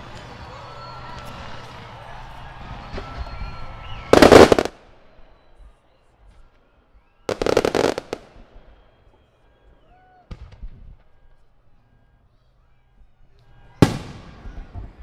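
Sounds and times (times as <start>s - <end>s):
fireworks bangs and crackle: 0.0s - 5.4s, 7.2s - 9.4s, 10.2s - 11.4s, 13.6s - 15.0s.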